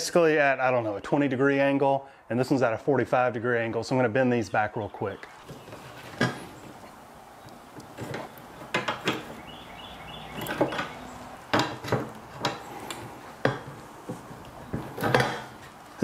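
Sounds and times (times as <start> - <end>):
steel tapping wooden bench: 7.5 - 15.8
metal clinks and knocks: 10.3 - 15.7.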